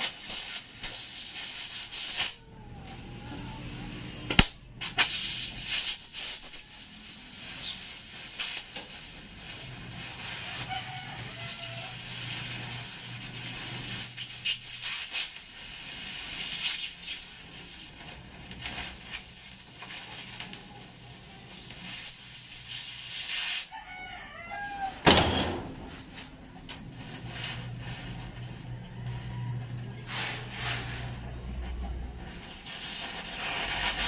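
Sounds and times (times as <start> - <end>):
cutting torch hissing: 0.0 - 2.4, 4.8 - 23.7, 32.3 - 34.0
rooster crowing: 10.5 - 12.2, 23.7 - 25.8, 28.5 - 30.5
loud metal bang: 25.0 - 25.9.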